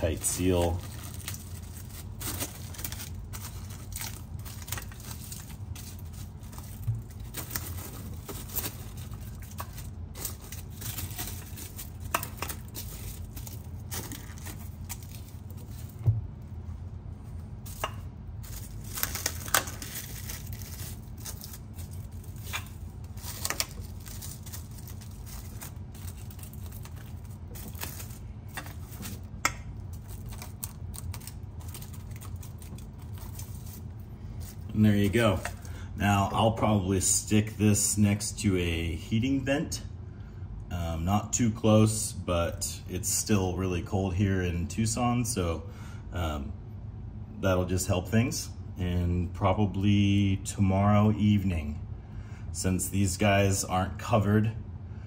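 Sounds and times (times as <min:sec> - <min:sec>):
plastic wrap crinkling: 0:00.0 - 0:16.5, 0:17.2 - 0:35.8.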